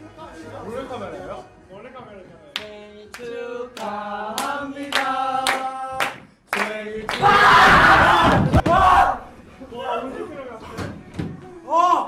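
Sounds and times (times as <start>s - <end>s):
hand clapping: 2.6s - 7.2s
young men singing together: 2.6s - 8.4s
group yelling: 7.1s - 9.3s.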